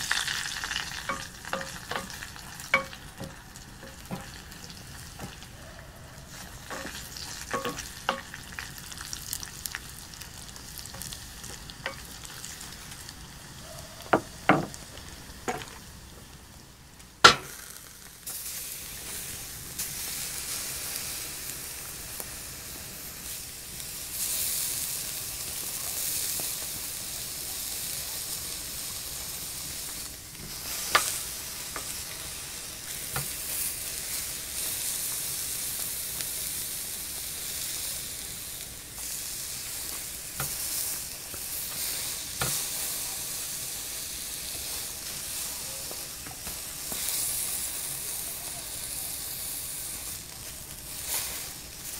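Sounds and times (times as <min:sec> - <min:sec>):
meat frying in a pan: 0:00.0 - 0:51.9
steak sizzling on a grill: 0:00.0 - 0:51.9
spatula scraping a pan: 0:00.1 - 0:05.4, 0:06.2 - 0:08.6.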